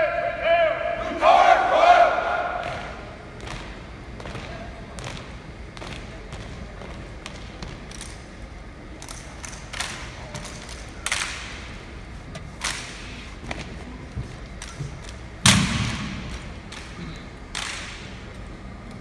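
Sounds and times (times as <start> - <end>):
heavy echoing thud: 15.4 - 16.7.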